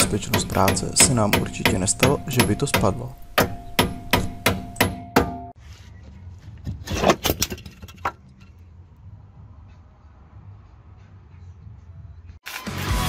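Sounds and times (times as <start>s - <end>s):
hammer striking metal: 0.0s - 5.6s
ringing metal note: 0.8s - 5.6s.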